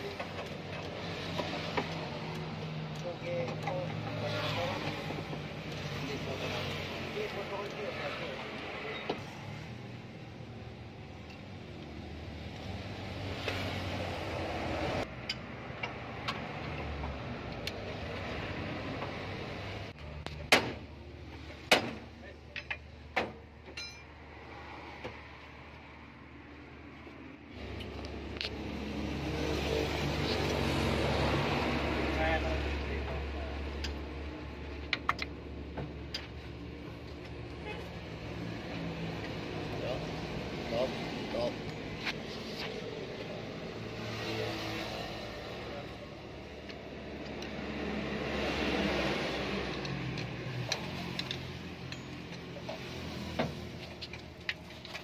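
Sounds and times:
light metal clicks and taps: 0:34.8 - 0:37.4, 0:49.7 - 0:52.8.

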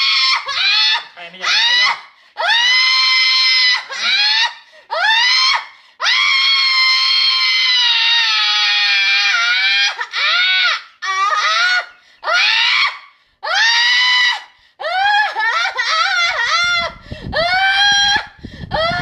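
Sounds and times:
person screaming: 0:00.0 - 0:05.6, 0:06.3 - 0:14.3.

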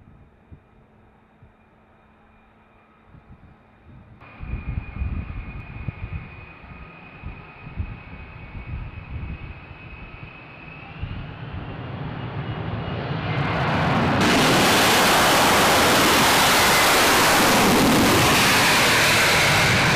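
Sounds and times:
jet taking off: 0:04.2 - 0:19.9.

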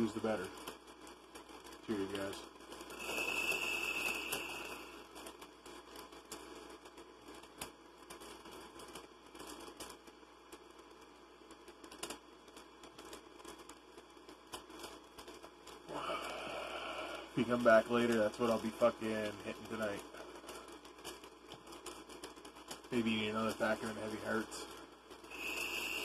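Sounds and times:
air hissing through valve: 0:03.0 - 0:05.1, 0:25.3 - 0:26.0.

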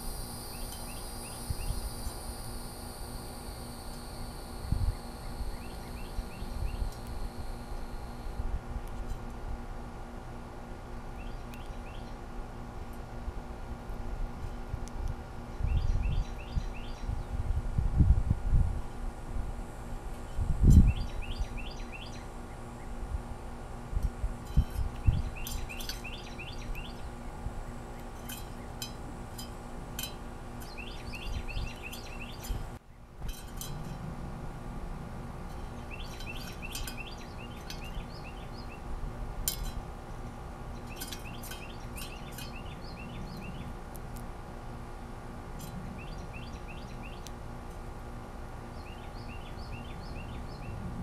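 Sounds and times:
birds chirping: 0:03.8 - 0:08.4, 0:20.2 - 0:23.0, 0:24.5 - 0:34.0, 0:35.5 - 0:43.8, 0:45.0 - 0:47.4, 0:48.7 - 0:50.9.

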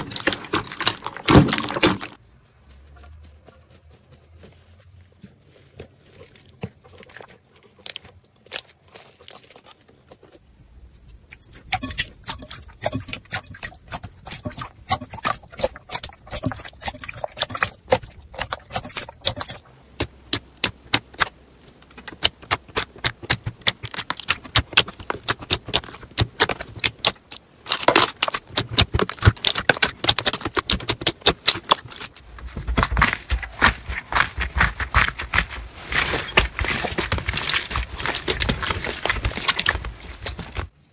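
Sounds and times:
slime crackling and popping: 0:22.0 - 0:32.3, 0:33.0 - 0:40.8.

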